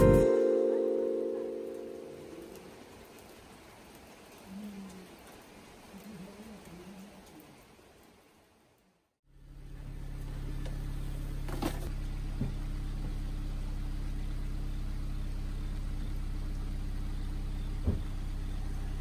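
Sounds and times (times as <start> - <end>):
engine idling: 9.3 - 19.0.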